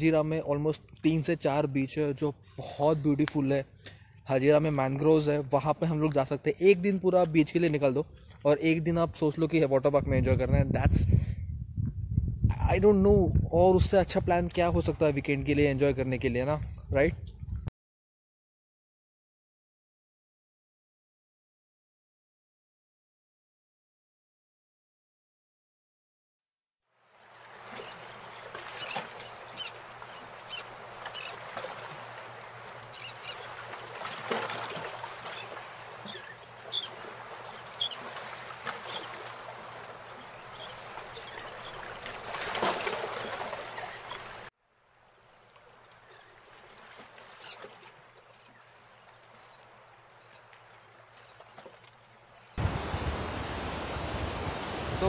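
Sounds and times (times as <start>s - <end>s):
sea waves breaking on beach: 27.1s - 44.5s, 45.2s - 55.0s.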